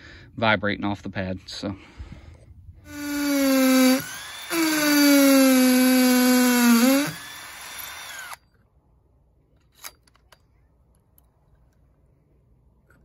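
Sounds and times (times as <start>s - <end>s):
cordless drill motor whine: 2.9s - 8.4s.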